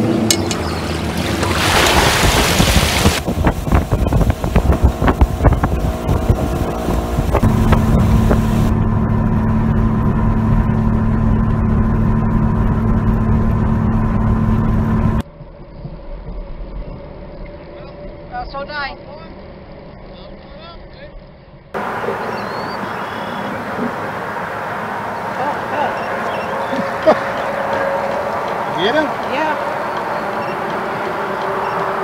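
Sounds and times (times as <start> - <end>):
outboard motor running: 0.0 - 16.2, 21.2 - 32.0
wind on microphone: 0.7 - 11.4.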